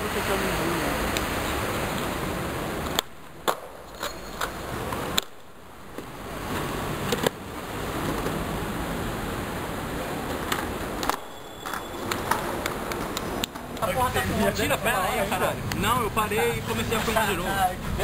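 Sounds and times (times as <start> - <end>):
skateboard wheels rolling on stone: 1.1 - 15.9
skateboard clacking on ground: 2.8 - 7.4, 10.2 - 13.9.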